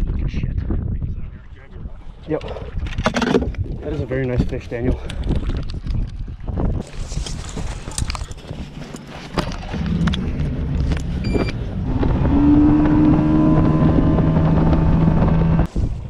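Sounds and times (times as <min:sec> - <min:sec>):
boat engine running: 0:07.4 - 0:15.7
short electronic beep: 0:11.2 - 0:11.6.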